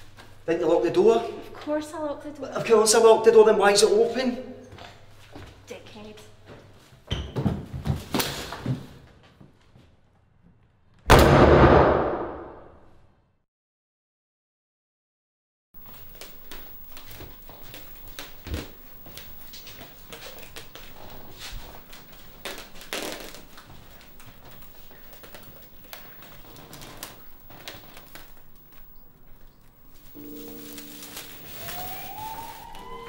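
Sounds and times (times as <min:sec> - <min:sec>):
bubble wrap crinkling: 0:15.8 - 0:33.0.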